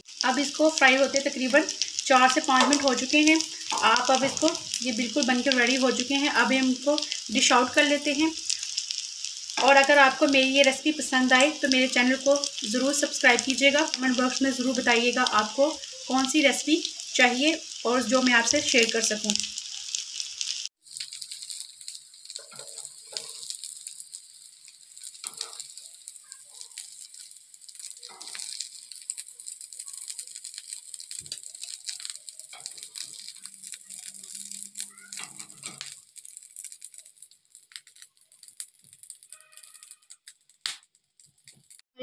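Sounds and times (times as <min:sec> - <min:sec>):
oil sizzling in grill pan: 0:00.0 - 0:41.8
metal spatula clinking and scraping: 0:22.3 - 0:23.6, 0:25.0 - 0:26.0, 0:27.8 - 0:28.7, 0:32.0 - 0:36.0.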